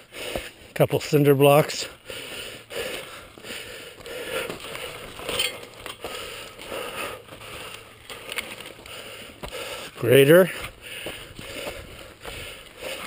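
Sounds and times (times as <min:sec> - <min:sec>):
footsteps on dry dirt trail: 0:00.0 - 0:13.0
bike handling rustling and clicks: 0:02.8 - 0:13.0.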